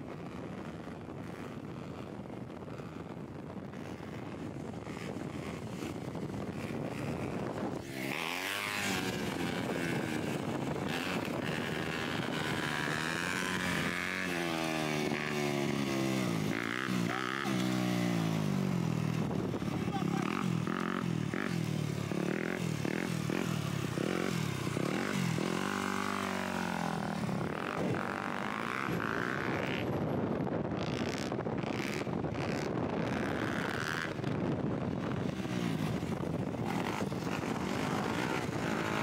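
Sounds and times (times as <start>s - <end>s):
dirt bike engine revving: 6.5s - 30.0s, 30.8s - 34.3s, 35.2s - 39.0s.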